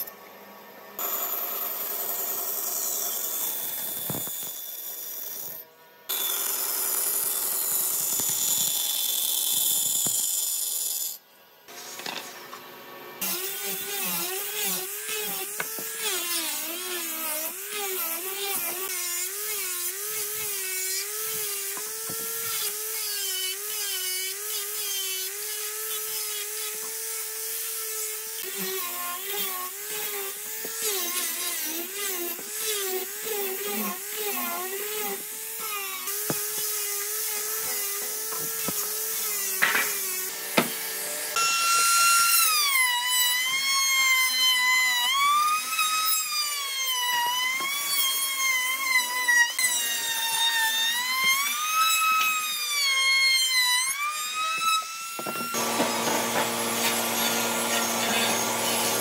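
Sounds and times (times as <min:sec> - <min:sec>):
angle grinder sanding: 0:13.2 - 0:59.0
sander motor whining: 0:54.3 - 0:59.0
router high whine: 0:55.2 - 0:59.0.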